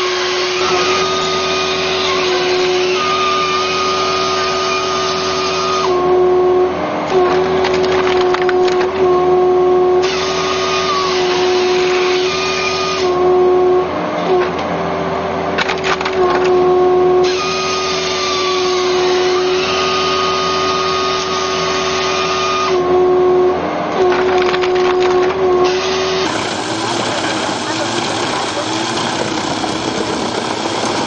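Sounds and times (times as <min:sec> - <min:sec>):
saw cutting through log: 0:00.0 - 0:06.2, 0:10.0 - 0:13.4, 0:16.2 - 0:22.9, 0:24.0 - 0:31.0
firewood processor running: 0:00.0 - 0:31.0.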